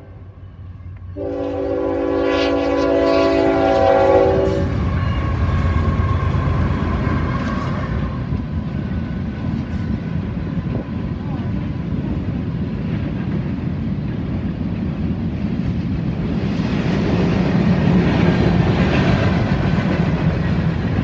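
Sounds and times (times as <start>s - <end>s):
locomotive rumbling past: 0.0s - 21.0s
locomotive air horn blast: 1.2s - 6.0s.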